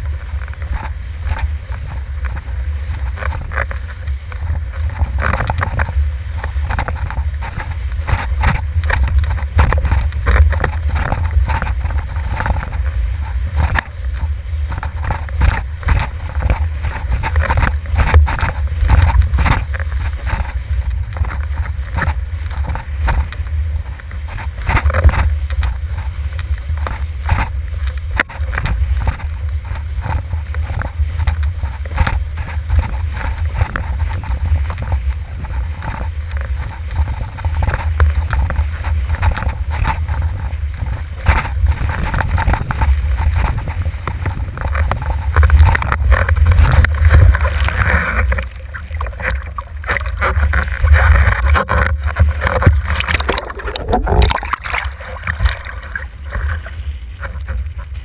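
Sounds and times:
heavy wind rumble: 0.0 - 58.0
water rushing: 0.0 - 58.0
board knocking against water: 3.0 - 26.1, 26.7 - 56.6.

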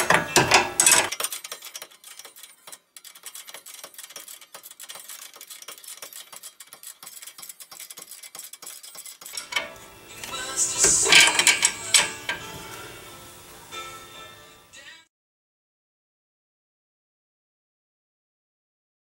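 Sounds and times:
wrench ratcheting clicks: 0.0 - 12.5.

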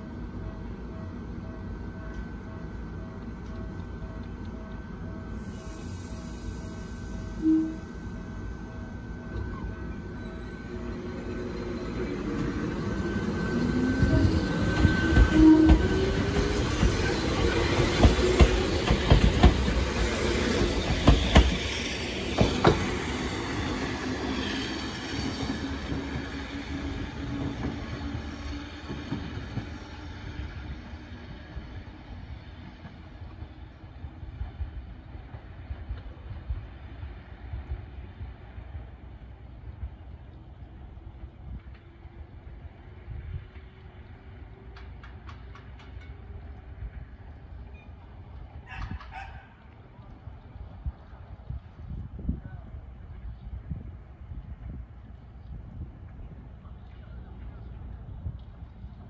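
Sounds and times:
train motor whine: 1.4 - 31.7
train wheels clacking: 9.3 - 30.0, 41.5 - 49.6.

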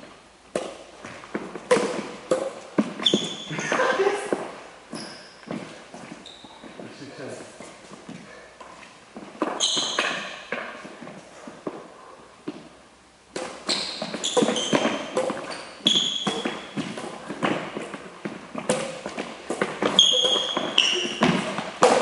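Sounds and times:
shoes squeaking on wooden floor: 0.0 - 11.8, 13.4 - 22.0
rackets hitting shuttlecock: 0.5 - 4.5, 13.3 - 22.0.

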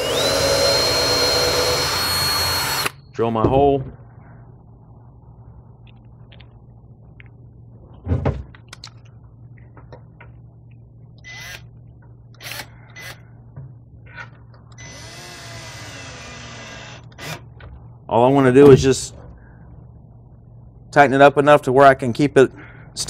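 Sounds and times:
cordless drill driving screw: 0.0 - 3.0, 14.8 - 17.4.

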